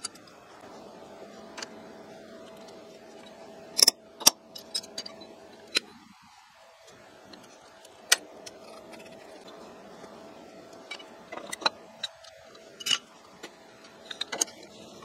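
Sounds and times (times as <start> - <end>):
faint steady hum: 0.0 - 15.0
metallic clicks of steel parts: 2.5 - 6.0, 10.7 - 14.8.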